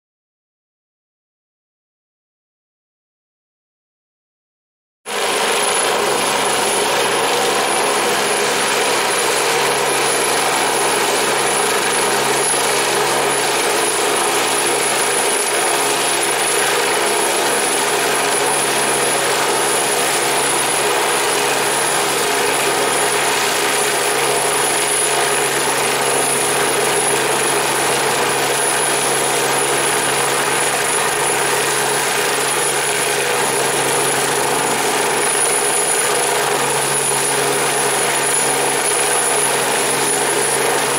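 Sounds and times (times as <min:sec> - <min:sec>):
helicopter turbine whine: 0:05.1 - 0:40.9.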